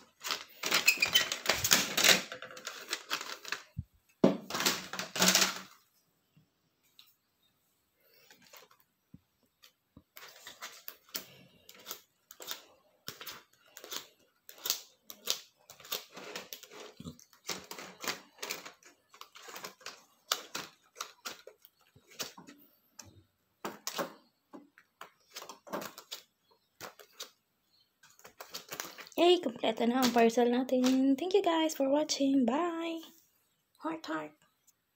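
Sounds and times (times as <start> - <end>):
sheets flipped clicking and rustling: 0.0 - 5.8, 9.6 - 27.4, 28.0 - 29.2, 29.9 - 31.1.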